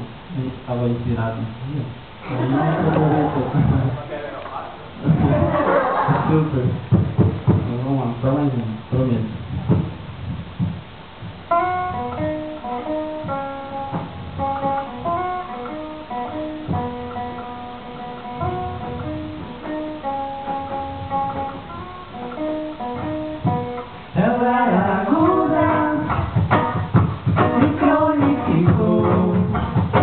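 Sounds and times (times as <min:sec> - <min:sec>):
acoustic guitar melody: 0:09.6 - 0:30.0
person singing: 0:24.2 - 0:26.3, 0:27.4 - 0:29.8.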